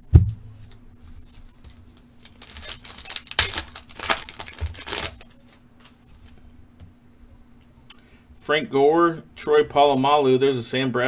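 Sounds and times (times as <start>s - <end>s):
thump: 0.0s - 0.6s
foil wrapper crinkling: 1.3s - 6.4s.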